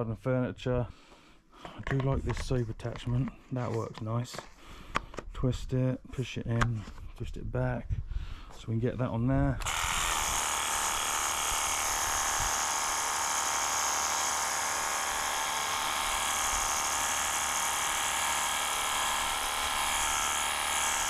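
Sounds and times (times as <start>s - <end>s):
pump motor whining: 9.6s - 21.0s.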